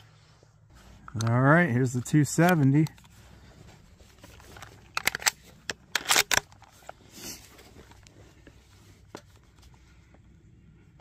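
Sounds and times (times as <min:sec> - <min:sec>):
rifle clicks and knocks: 0:04.2 - 0:07.0.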